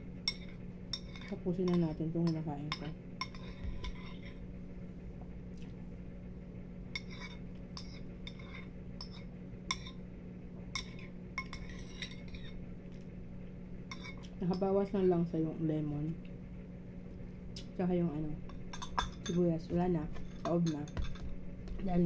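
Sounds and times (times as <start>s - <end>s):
steady low hum: 0.0s - 22.0s
spoon clinking on ceramic bowl: 18.7s - 19.4s.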